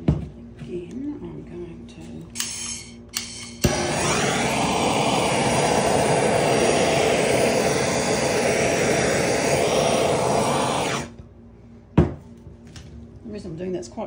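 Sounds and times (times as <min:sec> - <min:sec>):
heat gun blowing air: 0:03.2 - 0:11.2.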